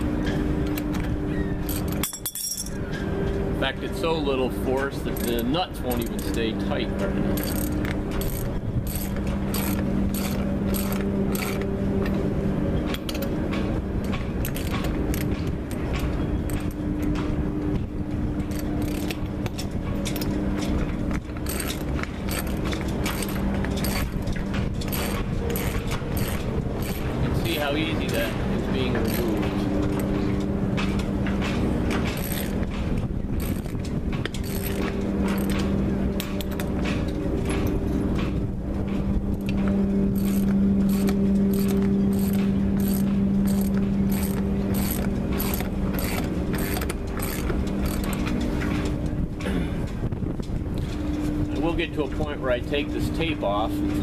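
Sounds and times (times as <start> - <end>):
steady low hum: 0.0 - 54.0
ratchet wrench clicking: 40.2 - 48.1.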